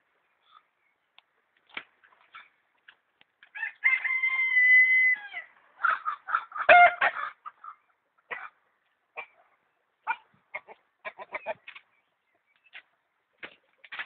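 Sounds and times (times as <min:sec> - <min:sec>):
rooster crowing: 0:03.5 - 0:05.5
chicken clucking and squawking: 0:03.9 - 0:11.7.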